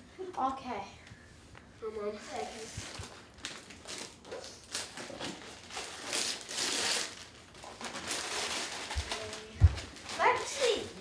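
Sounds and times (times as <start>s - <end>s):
wrapping paper rustling: 2.3s - 11.0s.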